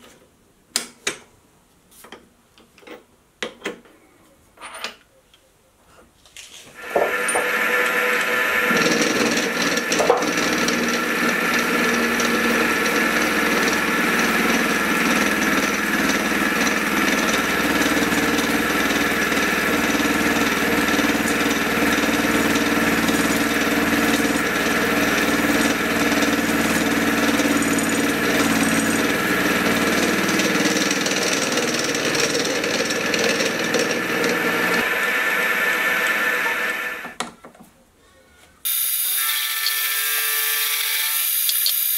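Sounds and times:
milling machine cutting steel: 0:06.8 - 0:37.0, 0:38.7 - 0:41.9.

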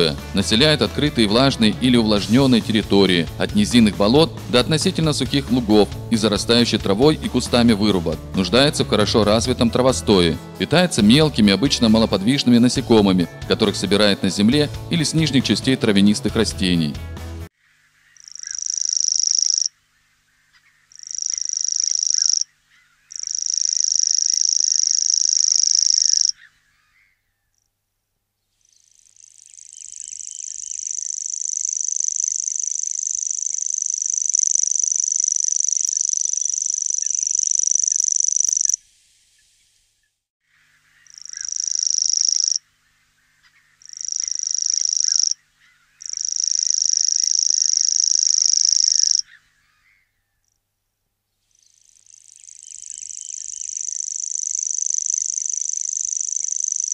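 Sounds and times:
bird high-pitched reeling trill: 0:18.2 - 0:19.7, 0:20.9 - 0:22.5, 0:23.1 - 0:26.4, 0:28.7 - 0:38.8, 0:41.0 - 0:42.6, 0:43.8 - 0:45.4, 0:46.0 - 0:49.4, 0:51.6 - 0:56.9.

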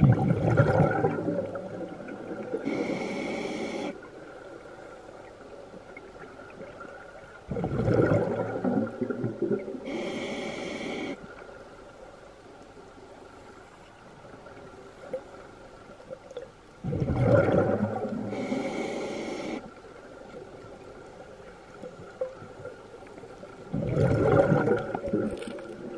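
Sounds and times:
regulator exhaust bubbling underwater: 0:00.0 - 0:02.4, 0:07.5 - 0:09.7, 0:16.8 - 0:18.3, 0:23.7 - 0:25.9
low steady underwater hiss: 0:00.0 - 0:25.9.

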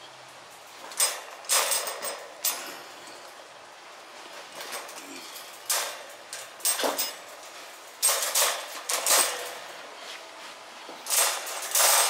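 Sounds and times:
wire crate panels clinking: 0:00.3 - 0:10.0, 0:11.0 - 0:12.0.

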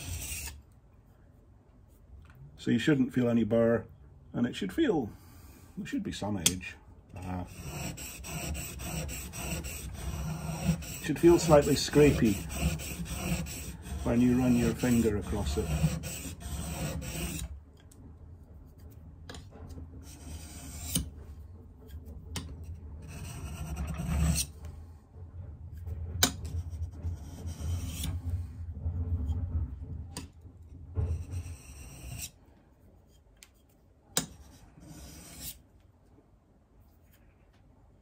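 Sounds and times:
chisel scraping on sharpening stone: 0:00.0 - 0:00.6, 0:07.4 - 0:17.5, 0:20.0 - 0:21.1, 0:23.0 - 0:24.5, 0:31.1 - 0:32.3, 0:34.2 - 0:35.6.

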